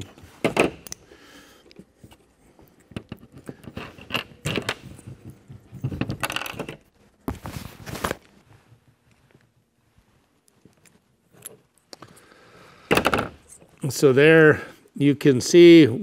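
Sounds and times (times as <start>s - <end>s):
pliers handling connector: 0.8s - 1.0s.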